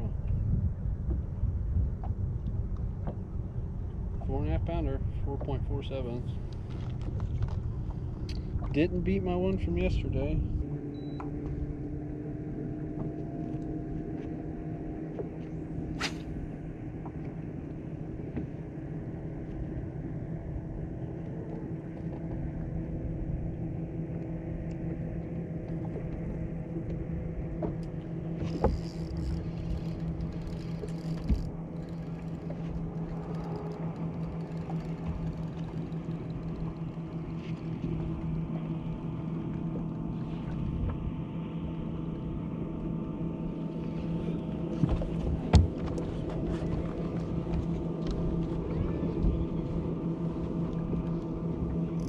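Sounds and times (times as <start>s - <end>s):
trolling motor humming: 0.0s - 52.0s
water and wind noise: 0.0s - 52.0s
knocks on boat: 44.8s - 46.7s.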